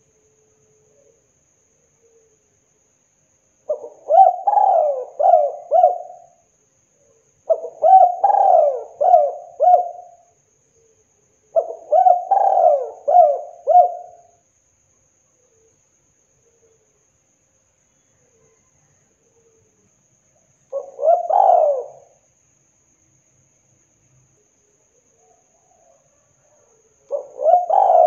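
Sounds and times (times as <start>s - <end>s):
dove cooing: 3.7s - 6.4s, 7.5s - 10.3s, 11.5s - 14.3s, 20.7s - 22.2s, 25.2s - 28.0s.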